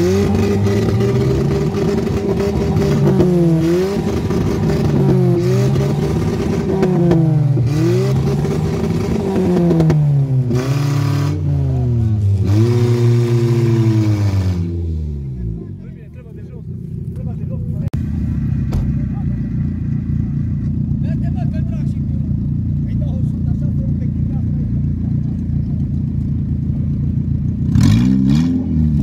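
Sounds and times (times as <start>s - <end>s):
car engine revving hard: 0.0s - 15.6s, 27.6s - 29.0s.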